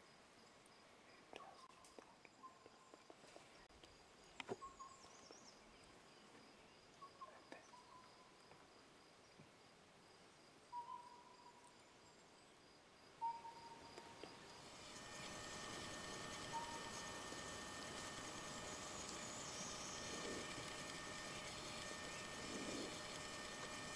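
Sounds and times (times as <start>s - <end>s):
high insect drone: 13.4s - 23.9s.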